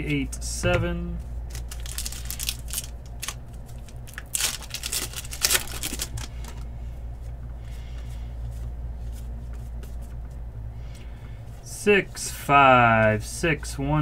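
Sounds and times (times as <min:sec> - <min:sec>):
cards rustling: 0:01.2 - 0:06.7
foil pack tearing and crinkling: 0:01.5 - 0:06.6.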